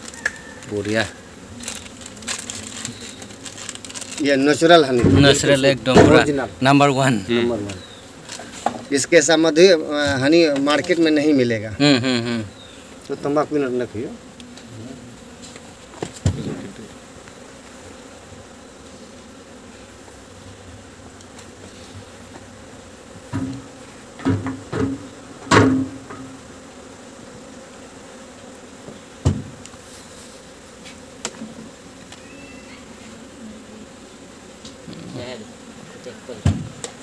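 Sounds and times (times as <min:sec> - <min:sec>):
bees buzzing: 0:00.0 - 0:37.0
wooden frames knocking on metal: 0:24.2 - 0:26.3.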